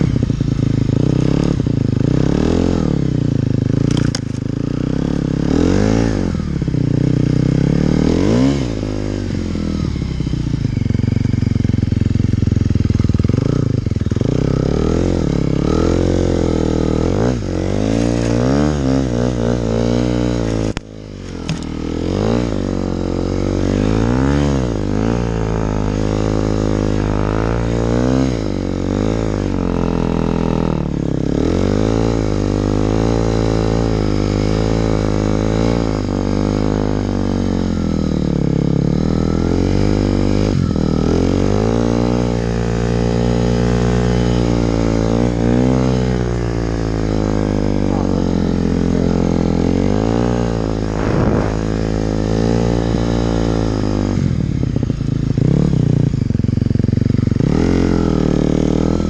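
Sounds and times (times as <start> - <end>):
snowmobile engine revving: 45.2 - 54.3.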